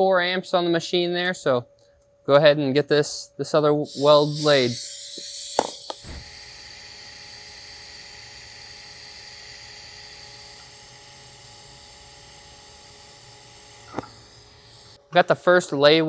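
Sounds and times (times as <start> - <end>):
welding arc hissing: 3.8 - 15.0.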